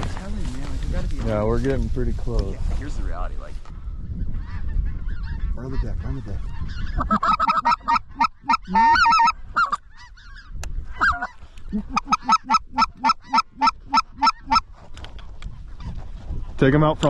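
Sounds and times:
goose yelping calls: 0:06.5 - 0:14.7.

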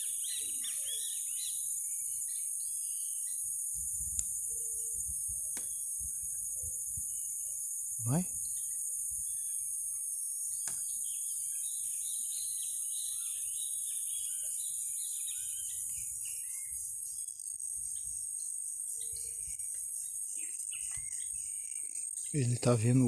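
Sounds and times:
birds chirping: 0:00.0 - 0:03.6, 0:10.4 - 0:23.0
insects trilling: 0:00.0 - 0:23.0.

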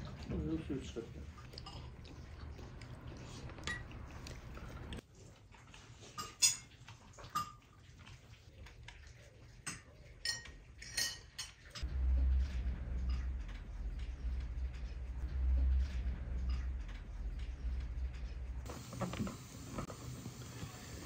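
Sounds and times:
dishes and cutlery clinking: 0:01.4 - 0:02.1, 0:06.0 - 0:07.8, 0:09.6 - 0:11.9
low hum: 0:11.8 - 0:18.7.

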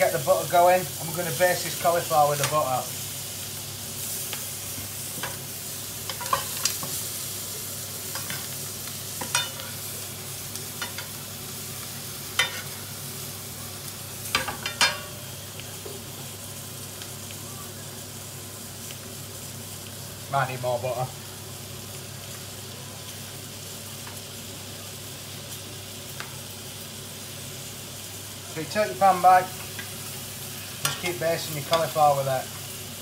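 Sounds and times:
butter sizzling in a frying pan: 0:00.0 - 0:33.0
spoon knocking and scraping pan: 0:06.1 - 0:07.0, 0:09.2 - 0:09.8.

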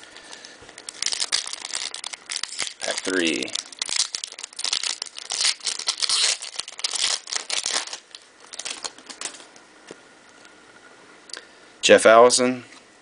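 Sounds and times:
foil wrapper crinkling and tearing: 0:00.2 - 0:09.5.

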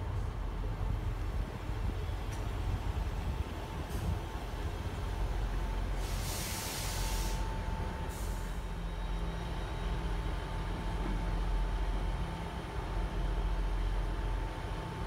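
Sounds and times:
diesel train engine rumble: 0:00.0 - 0:15.0
air brake hisses: 0:05.9 - 0:07.5, 0:08.1 - 0:08.7.

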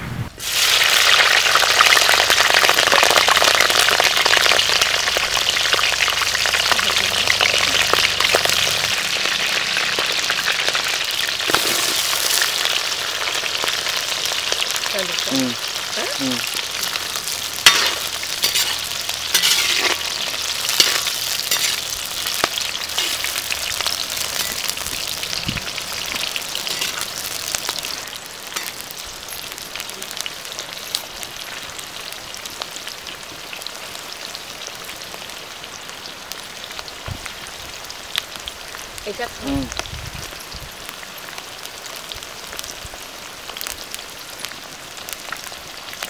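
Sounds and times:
onions sizzling in hot oil: 0:00.4 - 0:46.0
metal skimmer scraping pan: 0:17.6 - 0:21.9, 0:22.9 - 0:23.4, 0:26.7 - 0:27.1.

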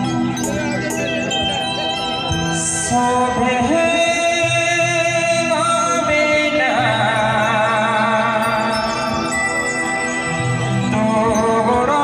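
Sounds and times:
held lead melody with vibrato: 0:00.0 - 0:12.0.

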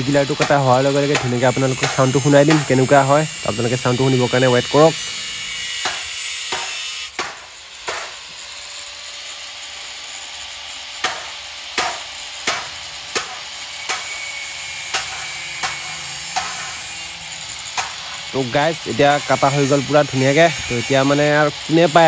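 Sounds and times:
hammer blows: 0:00.4 - 0:08.2.

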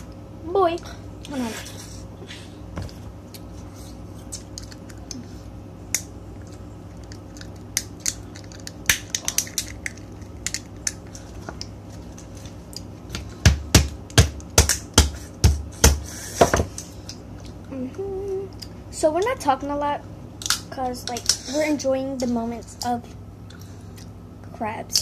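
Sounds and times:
crab shells cracking: 0:05.9 - 0:11.8.

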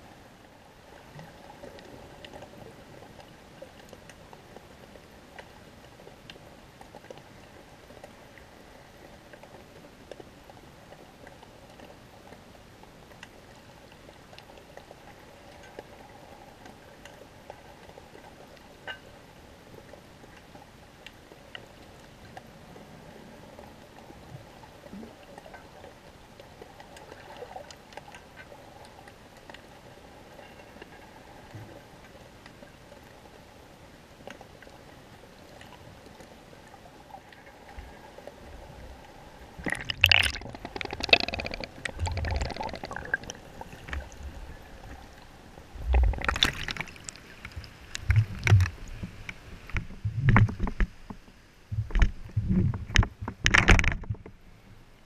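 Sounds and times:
faint underwater clicks: 0:01.0 - 0:33.4, 0:34.1 - 0:55.0
muffled underwater hiss and hum: 0:39.5 - 0:46.8.

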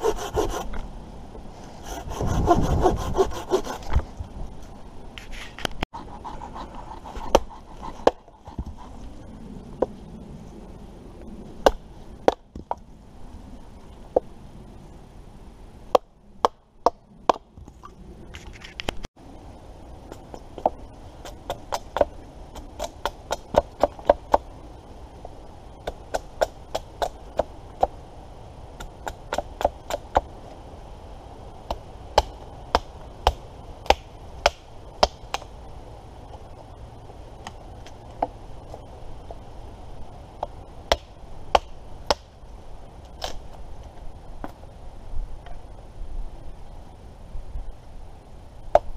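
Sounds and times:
wood being chopped: 0:31.7 - 0:35.5, 0:40.9 - 0:42.3.

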